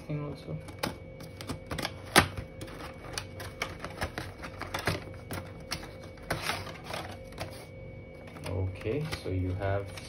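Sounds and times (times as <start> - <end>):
contents scraping out of box: 1.6 - 9.3.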